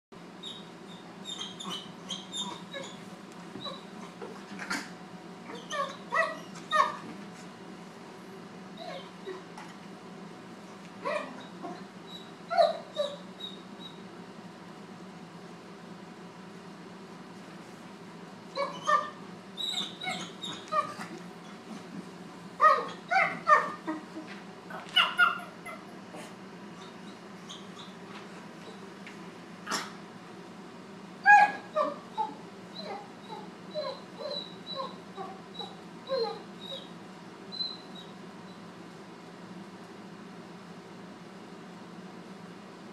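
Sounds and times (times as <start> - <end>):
puppies yipping and whimpering: 0.4 - 3.0, 3.6 - 4.2, 5.5 - 7.1, 11.0 - 14.0, 18.6 - 21.8, 22.6 - 25.9, 26.8 - 28.0, 31.2 - 38.2
small dog yappy barking: 5.5 - 7.0, 11.0 - 11.8, 18.6 - 21.1, 22.6 - 24.0, 24.7 - 25.9, 29.7 - 30.0, 31.2 - 36.9.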